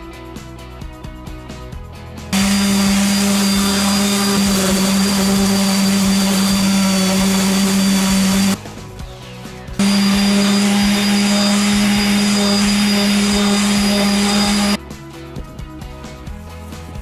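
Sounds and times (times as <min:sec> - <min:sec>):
background music with a beat: 0:00.0 - 0:17.0
wood router whining: 0:02.4 - 0:08.6, 0:09.8 - 0:14.8.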